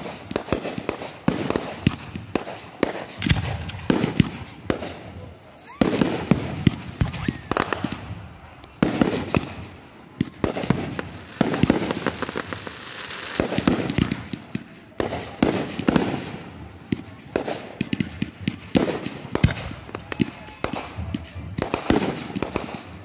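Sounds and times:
crackling sparks: 0.0 - 16.3
fireworks bangs: 0.0 - 23.0
echoing booms: 8.8 - 16.2.

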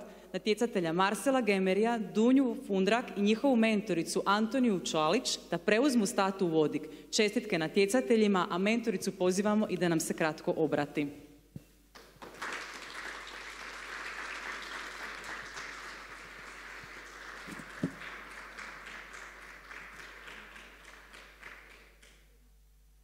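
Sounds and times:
audience applauding: 12.0 - 22.2.

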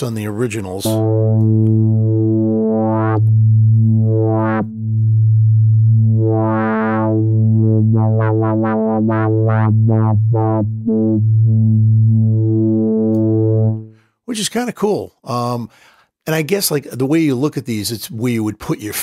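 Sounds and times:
synthesizer bass note filter sweep: 0.8 - 14.0.

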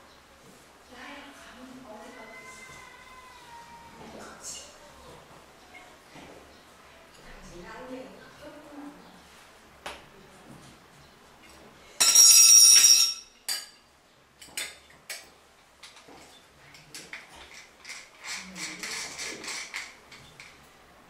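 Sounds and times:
metal pipes clinking: 12.0 - 13.8.

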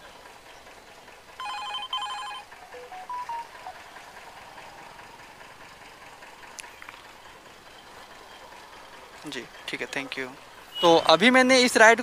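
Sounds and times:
rising electronic beeps: 2.8 - 3.8.

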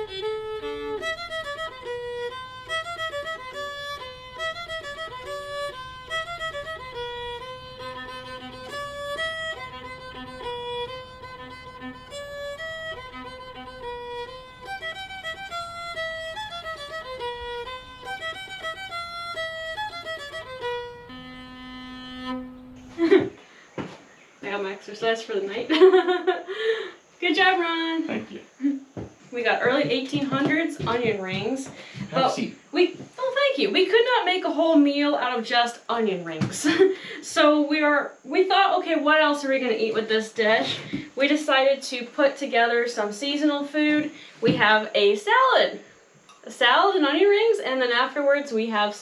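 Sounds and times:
fiddle playing fast tune: 0.0 - 23.0.

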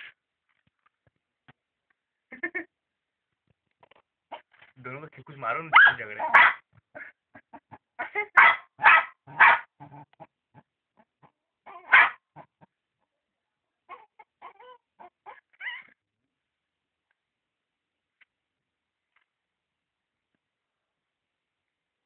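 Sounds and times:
dog barking: 5.7 - 6.6, 8.0 - 9.7, 11.7 - 12.5
dog whining: 11.7 - 12.2, 13.9 - 16.0.

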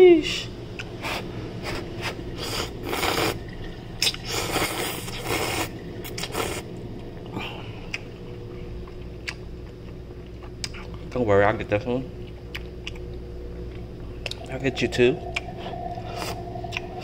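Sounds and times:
person slurping noodles: 1.0 - 3.4, 4.0 - 6.6.

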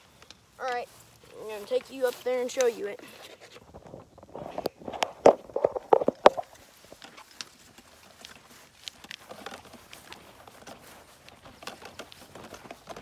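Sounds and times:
footsteps on grass: 0.0 - 13.0.

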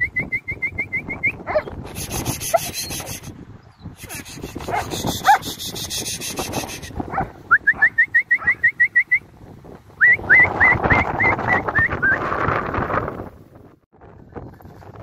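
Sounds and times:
dog yelping: 1.5 - 1.7, 4.7 - 5.5, 7.1 - 8.6.

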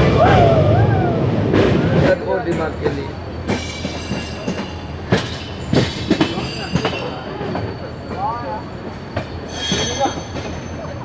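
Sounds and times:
train wheels clacking over rail joints: 1.5 - 11.0
high wheel squeal: 2.5 - 11.0.

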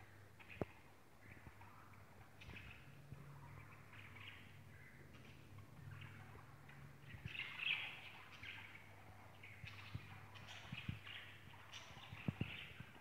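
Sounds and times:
low steady hum: 0.0 - 13.0
budgerigars chattering: 0.4 - 13.0.

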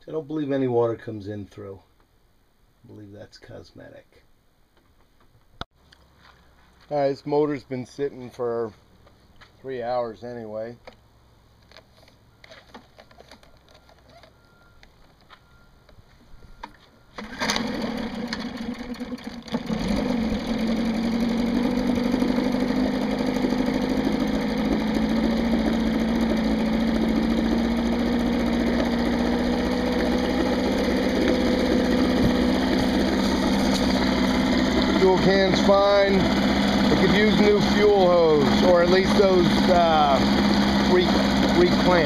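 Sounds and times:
outboard motor starting and idling: 11.6 - 15.7, 16.4 - 42.0.

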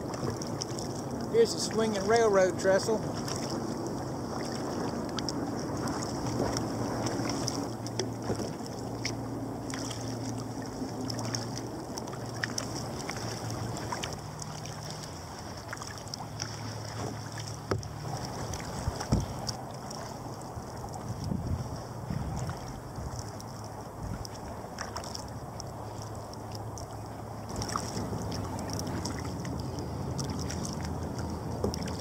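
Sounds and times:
paddle drips and splashes: 0.0 - 32.0
water lapping along hull: 0.0 - 32.0
wind on microphone: 16.9 - 24.6.

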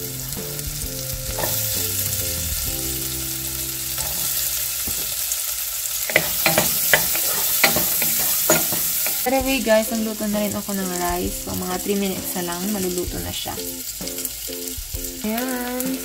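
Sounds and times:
onion sizzling in butter: 0.0 - 16.0
wooden spoon knocking and scraping: 6.1 - 9.2.

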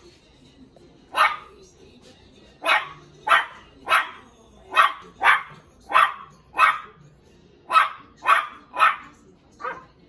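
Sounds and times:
puppy barking: 1.1 - 1.5, 2.6 - 7.0, 7.7 - 10.0.

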